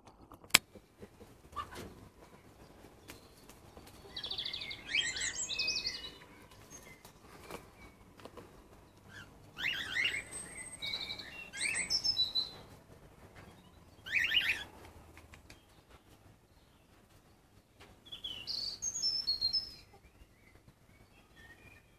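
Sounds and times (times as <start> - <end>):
cockatiels chirping and whistling: 9.1 - 12.6, 14.0 - 14.7.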